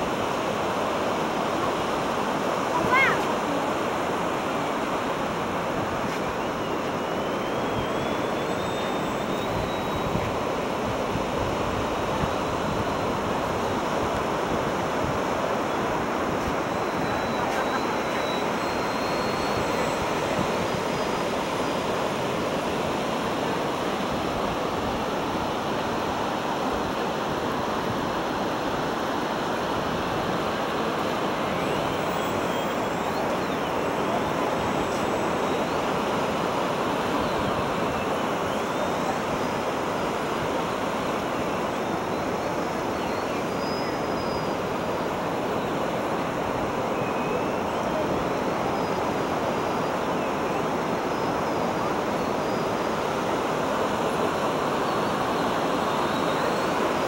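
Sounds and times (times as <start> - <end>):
ocean surf breaking: 0.0 - 38.6.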